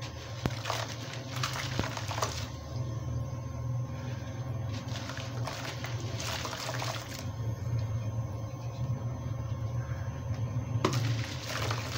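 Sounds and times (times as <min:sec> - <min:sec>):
steady low hum: 0:00.0 - 0:11.9.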